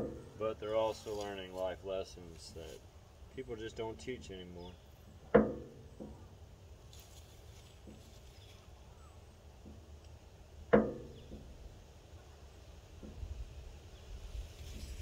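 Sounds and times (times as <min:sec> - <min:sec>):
sharp ringing knock: 0:05.3 - 0:06.2, 0:10.8 - 0:11.4.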